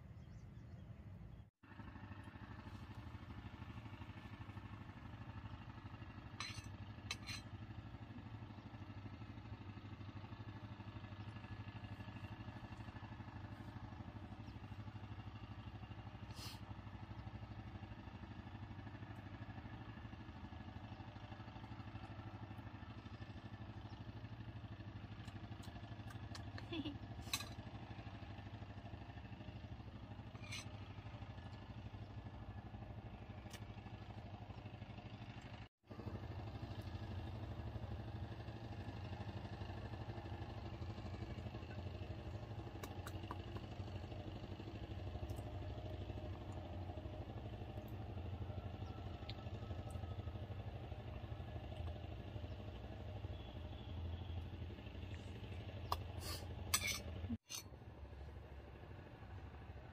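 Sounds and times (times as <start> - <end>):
low mechanical hum: 0.0 - 59.9.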